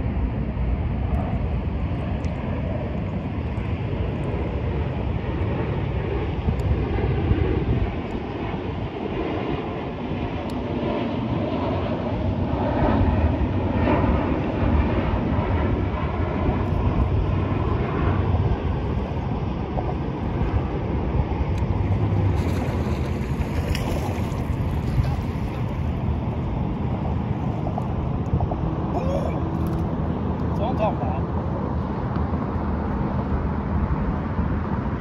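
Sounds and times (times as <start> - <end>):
wind rumble on microphone: 0.0 - 35.0
water washing against hull: 21.7 - 26.5.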